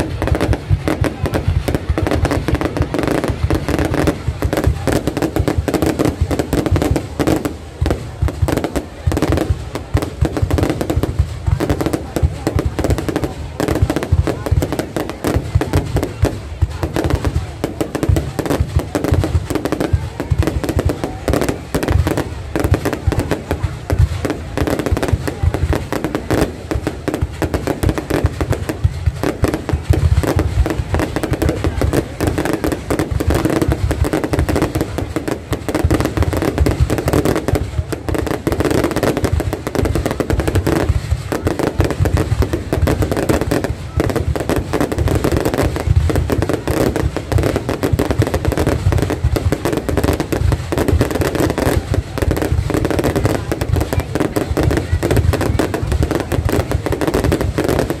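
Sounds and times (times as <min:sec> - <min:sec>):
fireworks bursting and crackling: 0:00.0 - 0:58.0.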